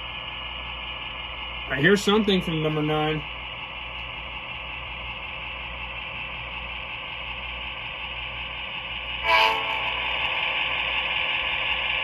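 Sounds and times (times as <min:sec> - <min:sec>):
diesel engine sound through small speaker: 0:00.0 - 0:12.0
short pitched sound: 0:09.2 - 0:11.0.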